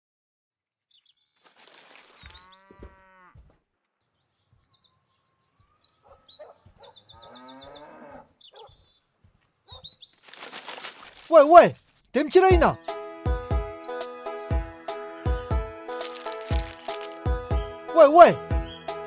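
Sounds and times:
small birds chirping and trilling: 0.5s - 14.5s, 15.3s - 19.0s
cow mooing: 2.4s - 3.4s, 7.2s - 8.3s.

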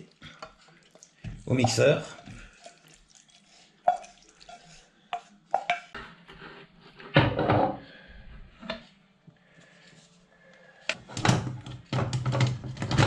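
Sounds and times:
wooden spoon scraping a frying pan: 3.5s - 7.2s.

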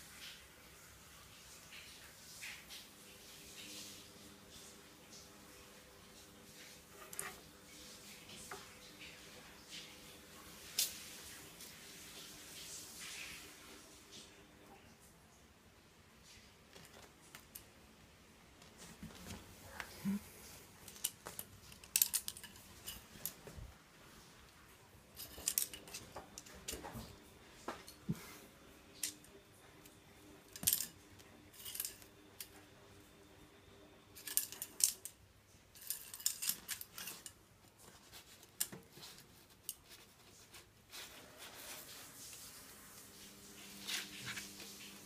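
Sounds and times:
rustling scrapes: 35.8s - 45.0s.

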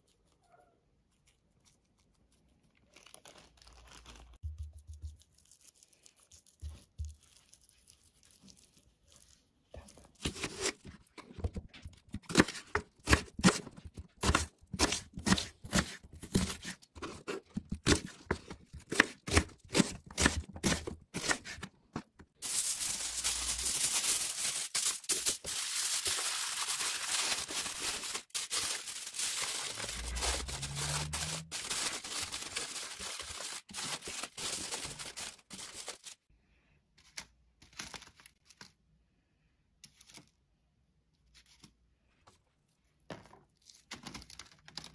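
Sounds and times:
aluminium foil crinkling: 1.1s - 12.4s, 22.3s - 36.3s
knife cutting onion on wooden board: 10.2s - 22.0s.

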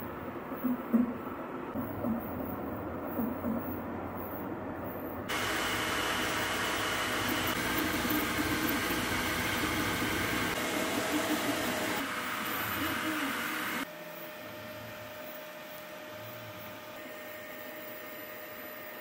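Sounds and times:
cooling fans hissing: 3.9s - 19.0s
stepper motors humming: 5.3s - 13.9s.

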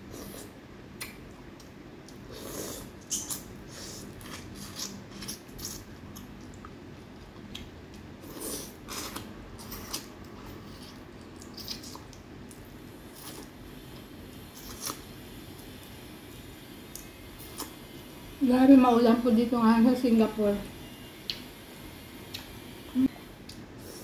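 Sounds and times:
lip and finger smacks: 1.0s - 2.2s
chewing: 1.0s - 13.5s.

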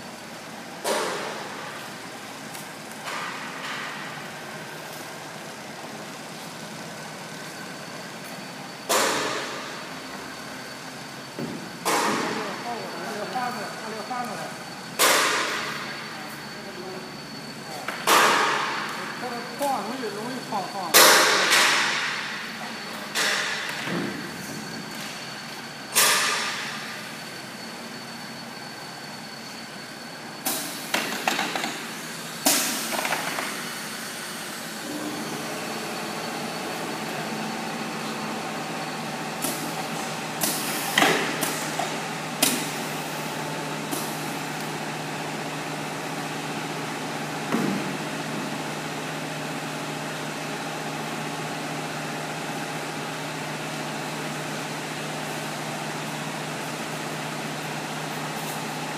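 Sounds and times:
mechanical hum: 0.0s - 58.9s
pneumatic cylinders clacking: 8.1s - 10.5s, 14.9s - 16.4s, 17.7s - 27.7s, 30.4s - 37.3s, 39.0s - 44.8s.

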